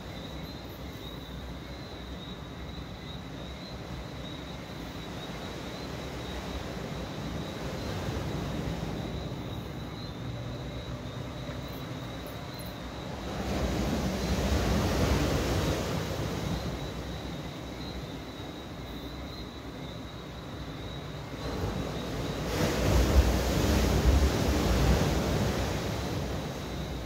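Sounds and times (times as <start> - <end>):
night insects trilling: 0.0 - 27.0
waves washing onto beach: 12.8 - 18.8, 21.0 - 27.0.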